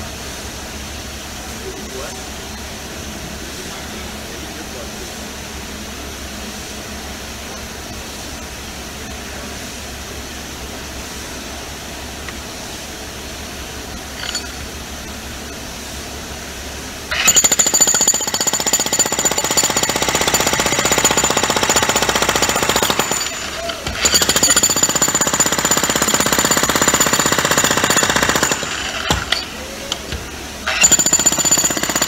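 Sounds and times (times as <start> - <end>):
electric breaker hammer hammering: 17.1 - 32.0.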